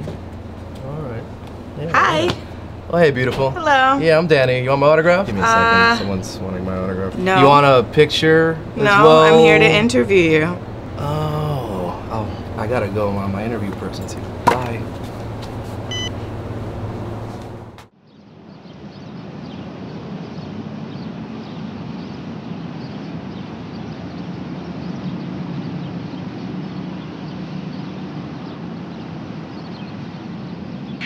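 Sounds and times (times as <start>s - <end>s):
low background hum: 0.0s - 17.9s.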